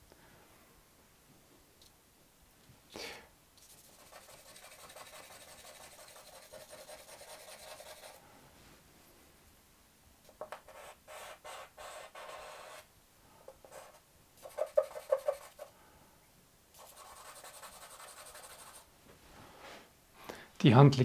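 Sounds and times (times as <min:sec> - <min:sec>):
charcoal scratching on paper: 0:03.6 - 0:08.2, 0:10.4 - 0:12.9, 0:13.6 - 0:15.7, 0:16.8 - 0:18.9.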